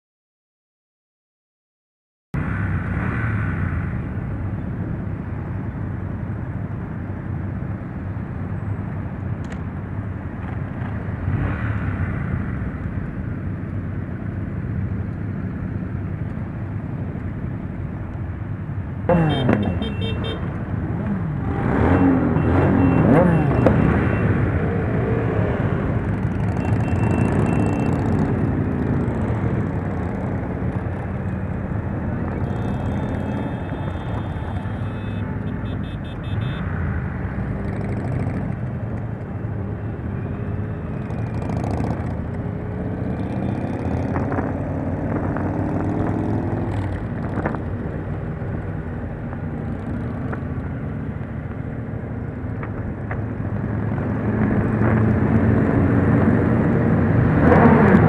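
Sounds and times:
motorcycle engines: 2.4s - 58.0s
road traffic: 2.4s - 58.0s
high beeps: 26.5s - 28.2s.

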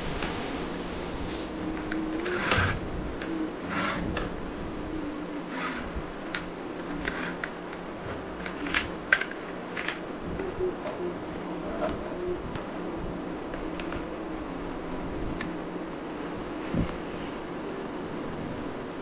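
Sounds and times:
plastic toy clicks and rustles: 8.4s - 10.0s.

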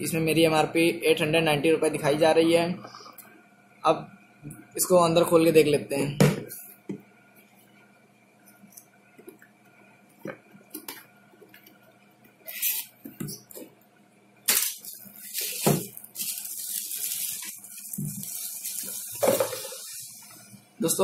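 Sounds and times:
cardboard and packaging rustling: 14.6s - 19.9s.

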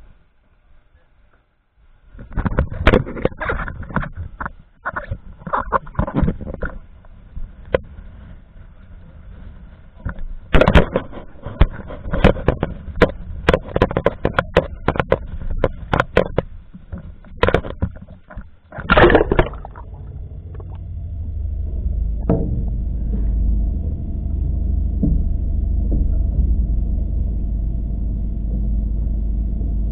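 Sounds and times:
low rumble: 6.9s - 17.3s, 18.8s - 29.9s.

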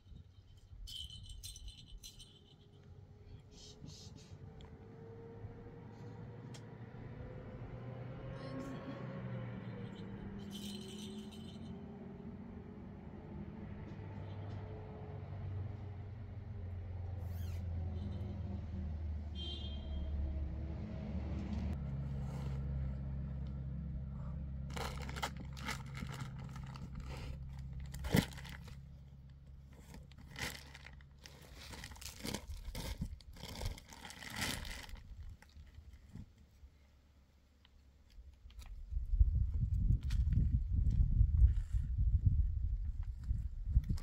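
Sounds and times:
plastic bags crinkling and rustling: 24.7s - 28.9s, 29.7s - 36.2s.

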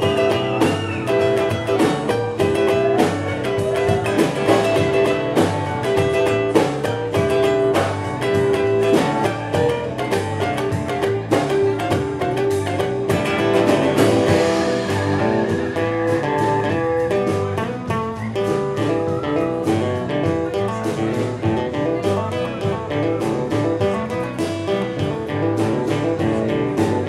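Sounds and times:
drum kit hits: 0.0s - 18.8s
acoustic guitar: 0.0s - 27.0s
bass guitar: 0.0s - 27.0s.

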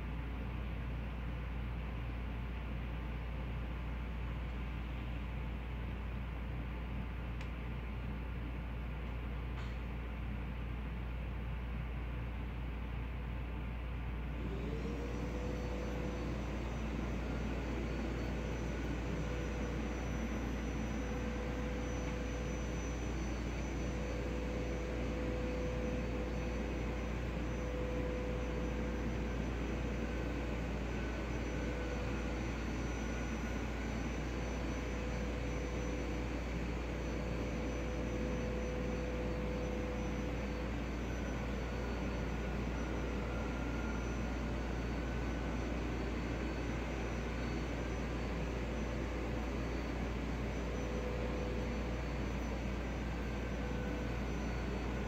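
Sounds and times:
faint wavering whine: 0.0s - 55.0s
mechanical drone with hum: 0.0s - 55.0s.

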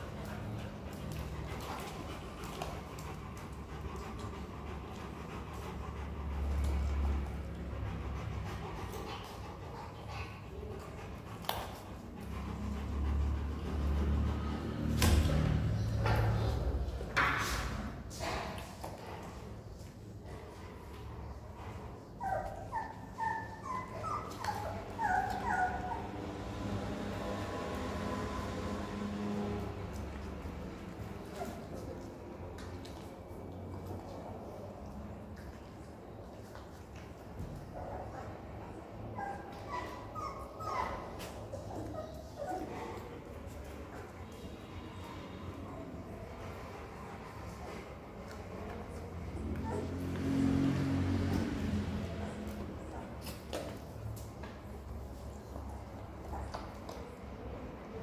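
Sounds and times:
dog panting: 0.0s - 14.9s
puppy whimpering: 22.0s - 26.4s, 39.1s - 43.5s, 49.0s - 50.2s.

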